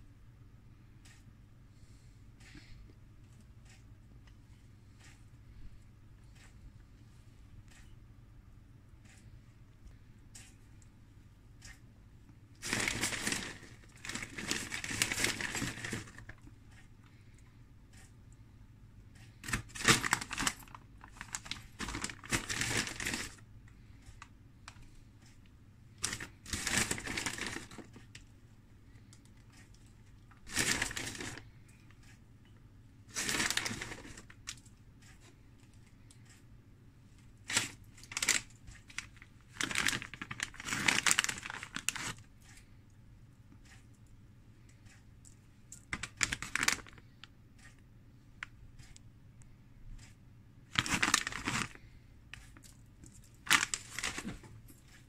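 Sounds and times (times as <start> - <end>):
plastic bag crinkling: 12.6 - 16.5, 19.4 - 23.4, 26.0 - 28.2, 30.3 - 31.6, 33.1 - 34.7, 37.4 - 42.3, 45.8 - 47.0, 50.7 - 54.8.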